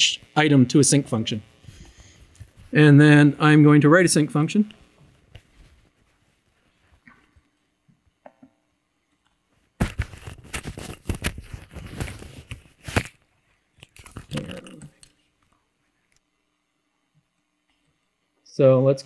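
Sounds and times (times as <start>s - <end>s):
crackling rustling noise: 1.0s - 2.8s, 4.7s - 7.6s, 9.3s - 16.3s.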